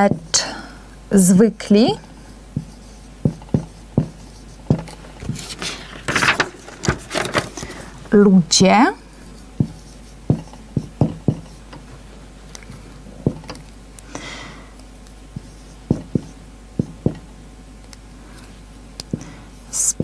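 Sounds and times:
marker tapping on whiteboard: 2.6s - 5.0s, 9.6s - 11.6s, 13.2s - 13.6s, 15.4s - 17.3s.

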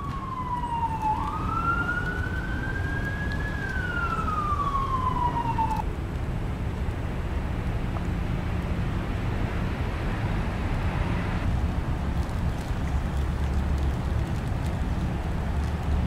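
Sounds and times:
siren wailing: 0.0s - 5.8s.

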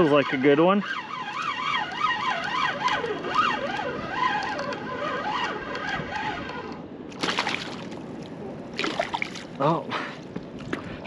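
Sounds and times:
fishing reel gear whine: 0.0s - 6.8s.

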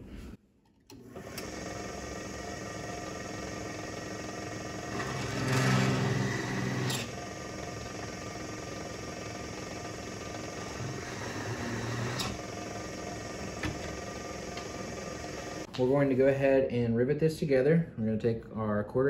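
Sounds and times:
drill press running: 0.9s - 15.7s
bit cutting into steel: 4.9s - 7.1s.

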